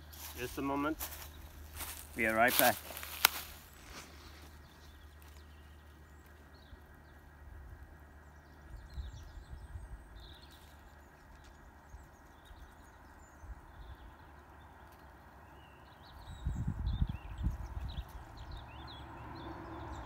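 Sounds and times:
bird chirps: 0:08.2 - 0:20.0.

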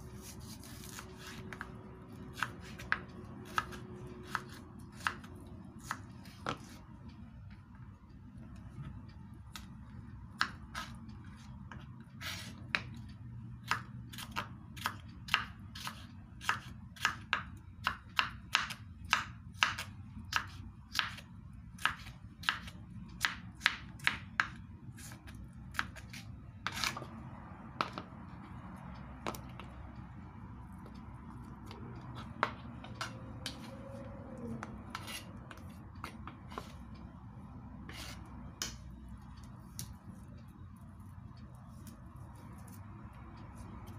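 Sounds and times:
knife slicing pepper: 0:00.2 - 0:01.7.

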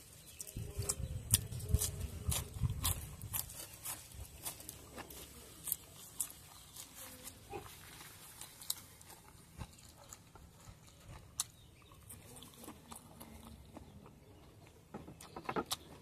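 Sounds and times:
crunchy chewing clicks: 0:00.0 - 0:16.0
wet chewing sounds: 0:00.0 - 0:16.0.

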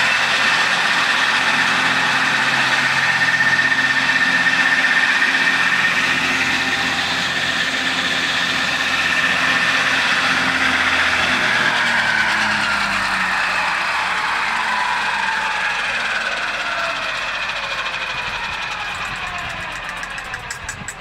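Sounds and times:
high steady whine: 0:00.0 - 0:21.0
tractor engine idling: 0:00.0 - 0:21.0.

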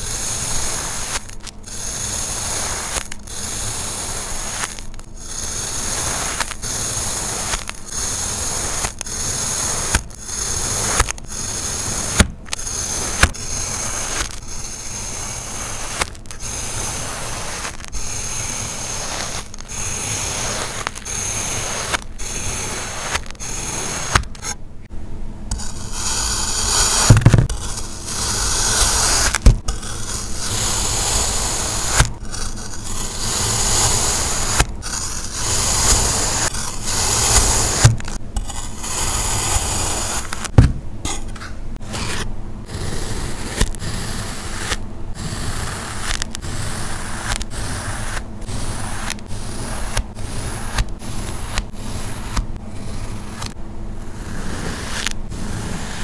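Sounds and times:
gritty sand scraping: 0:00.0 - 0:24.6, 0:25.5 - 0:40.6
soft thumps: 0:40.5 - 0:40.9.

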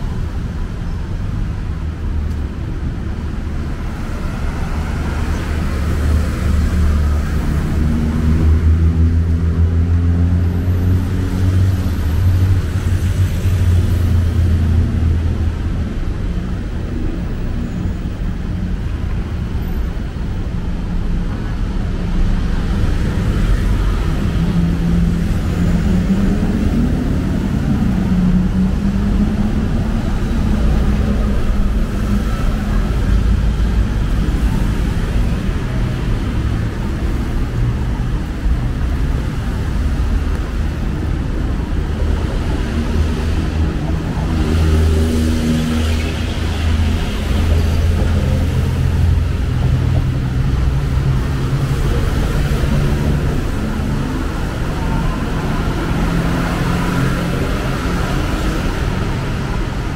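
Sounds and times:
vehicles passing: 0:00.0 - 0:59.9
vehicles pulling away: 0:22.1 - 0:59.9.

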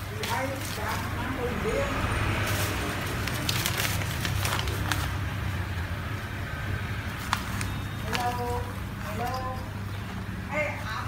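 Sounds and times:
paper crinkling and tearing: 0:00.0 - 0:05.6, 0:07.1 - 0:08.8.

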